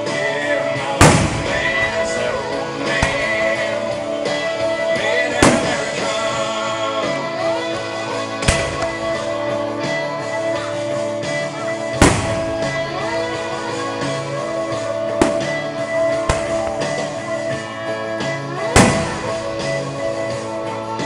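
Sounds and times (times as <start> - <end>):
country song with guitar and drums: 0.0 - 21.0
music with singing: 0.0 - 21.0
firework shells bursting: 1.0 - 6.2, 8.4 - 9.5, 12.0 - 17.6, 18.6 - 20.4.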